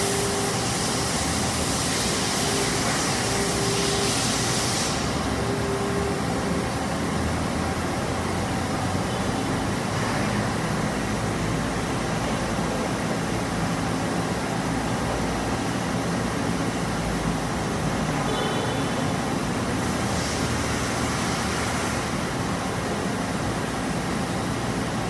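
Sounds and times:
lathe machining noise: 0.0 - 9.1.

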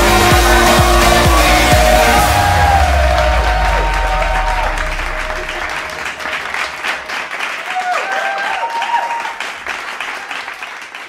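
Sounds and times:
dance music: 0.0 - 7.4
people applauding: 0.0 - 11.0.

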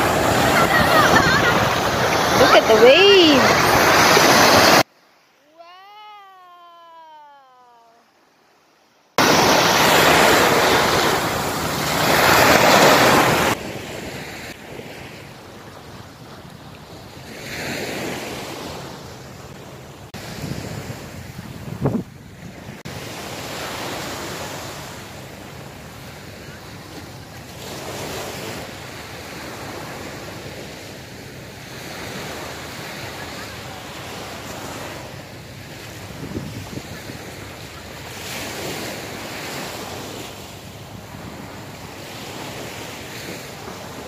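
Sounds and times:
small waves washing over sand: 0.0 - 4.9, 9.2 - 44.0
wind on microphone: 20.2 - 22.8, 35.7 - 38.2.

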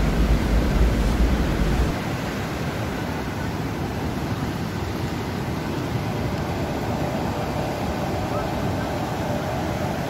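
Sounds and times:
floodwater rushing: 0.0 - 10.0.

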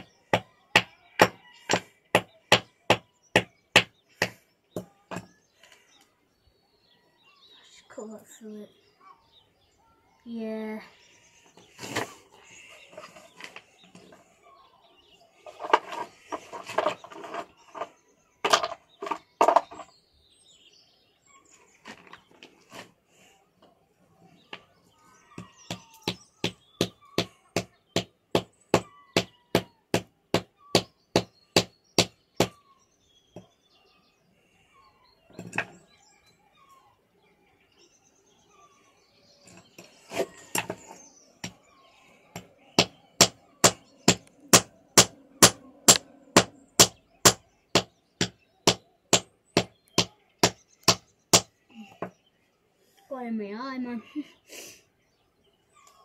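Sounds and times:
hammer striking stones: 0.0 - 5.2, 16.7 - 19.9, 42.8 - 51.5.

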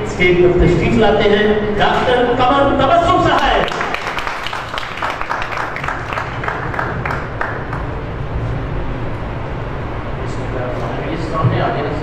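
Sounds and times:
steady low hum: 0.0 - 12.0
audience clapping: 3.3 - 8.0.

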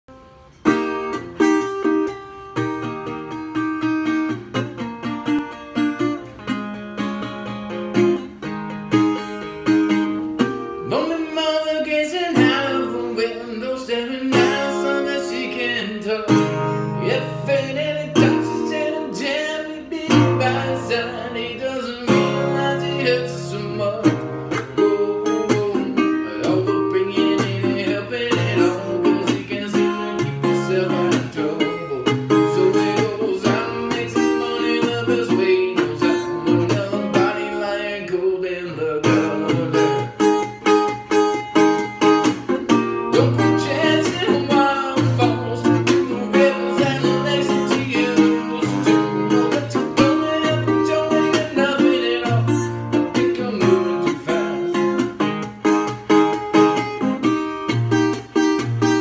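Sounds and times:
strummed resonator guitar: 0.1 - 59.0
man singing: 10.7 - 40.7, 42.4 - 57.4.

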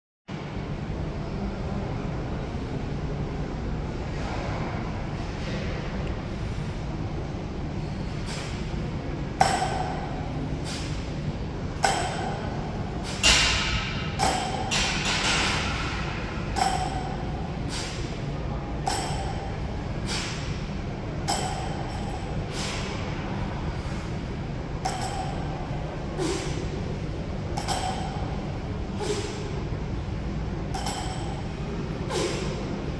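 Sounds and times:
steady low hum: 0.3 - 32.9
barbell thumping on rubber floor: 11.8 - 17.4, 18.8 - 19.5, 21.2 - 22.2, 24.8 - 25.5, 27.5 - 28.4.

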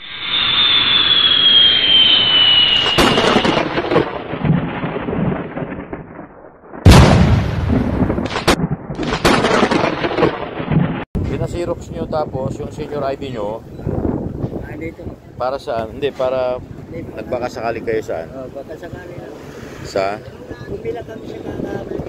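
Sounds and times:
falling whistling tone: 0.0 - 4.2
electric crackles: 0.0 - 11.0
thunder rumbling and cracking: 2.2 - 12.6.

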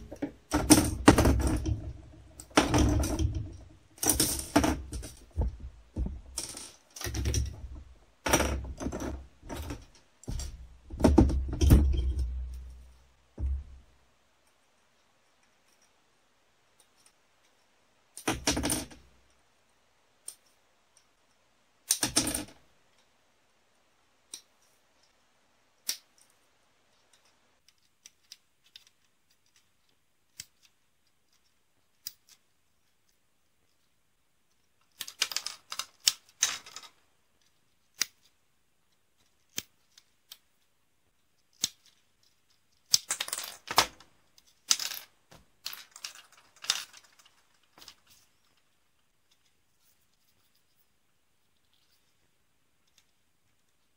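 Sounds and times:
plastic runners clattering: 0.0 - 12.7.

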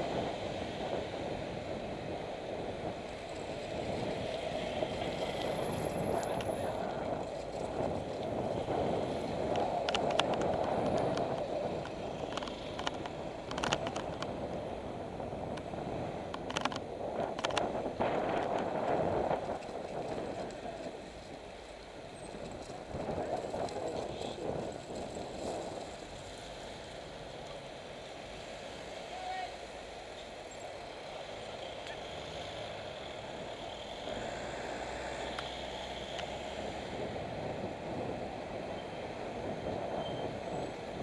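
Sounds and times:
wind rushing on microphone: 0.0 - 27.4, 34.0 - 41.0.

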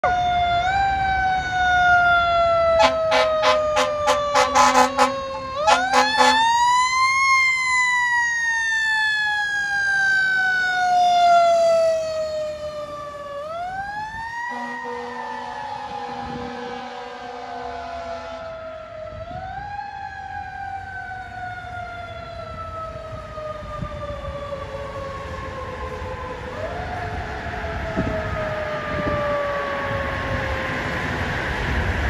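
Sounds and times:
fire engine siren wailing: 0.0 - 32.0
air horn blasts: 2.8 - 6.5, 14.5 - 18.5.

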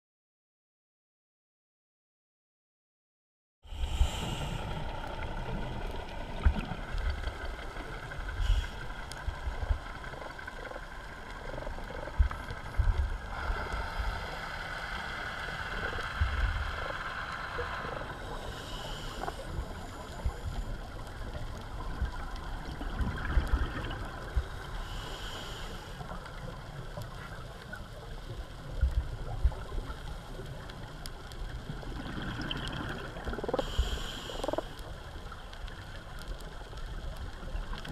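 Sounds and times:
scuba regulator breathing: 3.7 - 4.9, 8.3 - 8.9, 13.3 - 15.7, 16.6 - 20.7, 24.5 - 26.2, 33.4 - 34.9
exhaled bubbles: 22.2 - 24.6, 31.6 - 34.7.

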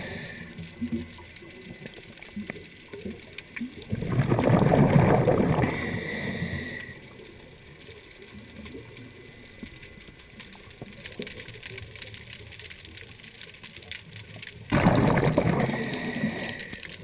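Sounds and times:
faint underwater crackling: 0.0 - 17.0
regulator bubbles gushing: 3.1 - 6.0, 14.6 - 17.0.

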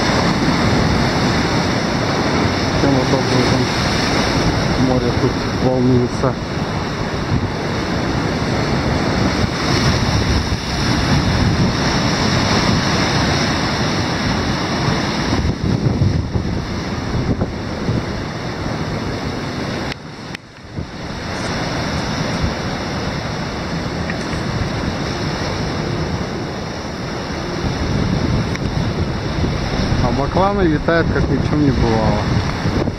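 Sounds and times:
surf breaking against boulders: 0.0 - 32.9
wind on microphone: 0.0 - 32.9.

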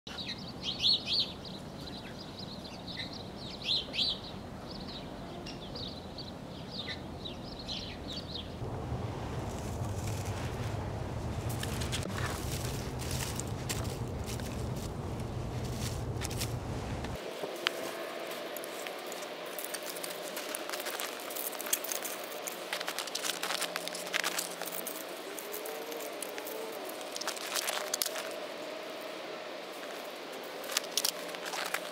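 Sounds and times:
songbirds chirping: 0.1 - 31.9
faint low background rumble: 8.6 - 17.2
wooden sticks clicking and clattering: 15.7 - 28.4, 30.6 - 31.9.

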